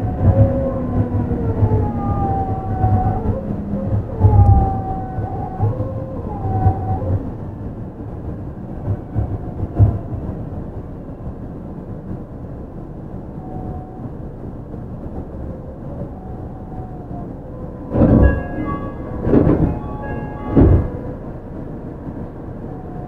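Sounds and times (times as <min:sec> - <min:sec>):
monorail rumble: 0:00.0 - 0:23.0
steady tones: 0:17.8 - 0:21.8.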